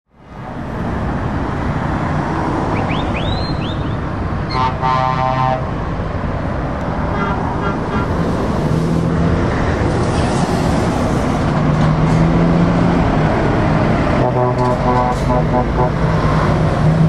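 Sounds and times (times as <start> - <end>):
traffic rumbling past: 0.2 - 17.0
vehicle horn: 4.5 - 5.7, 7.1 - 8.2, 14.2 - 16.1.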